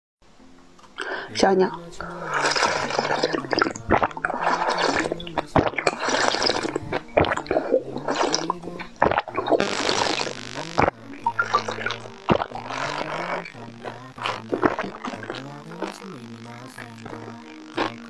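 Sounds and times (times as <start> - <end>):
slurping through a straw: 2.0 - 16.2, 17.2 - 18.0.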